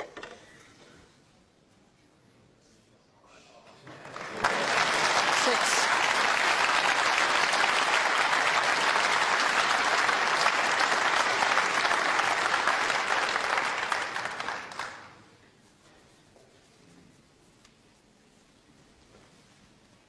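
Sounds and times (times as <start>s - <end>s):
audience applauding: 3.8s - 15.3s.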